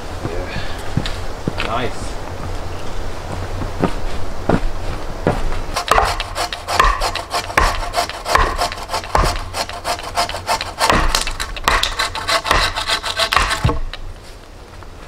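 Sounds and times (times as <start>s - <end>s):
sharp wooden knocks: 5.3s - 14.0s
hand saw cutting log: 5.8s - 14.0s.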